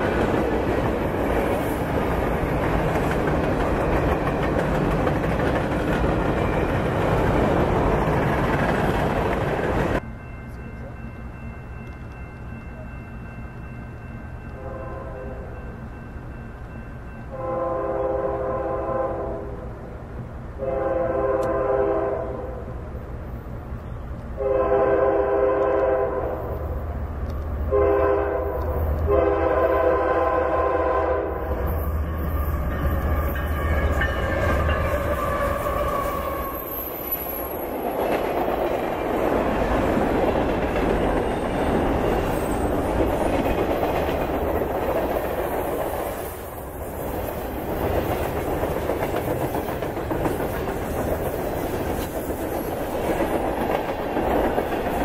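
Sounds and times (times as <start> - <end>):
train wheels clattering on rail: 0.0 - 10.6, 31.4 - 55.0
train horn blasts: 14.6 - 15.6, 17.3 - 19.7, 20.6 - 22.7, 24.4 - 26.5, 27.7 - 36.7.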